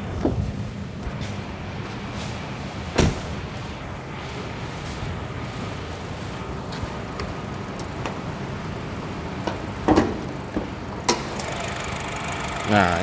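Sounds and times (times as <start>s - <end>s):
car engine idling: 2.8s - 13.0s.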